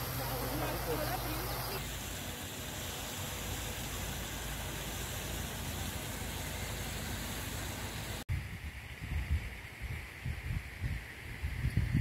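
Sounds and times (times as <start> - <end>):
outdoor background hiss: 0.0 - 12.0
wind buffeting microphone: 8.3 - 12.0.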